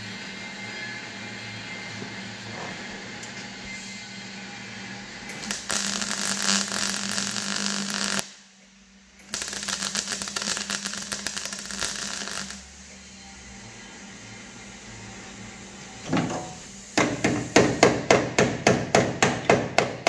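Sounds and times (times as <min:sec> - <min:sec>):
welder crackling: 0:05.3 - 0:08.4, 0:09.2 - 0:12.9.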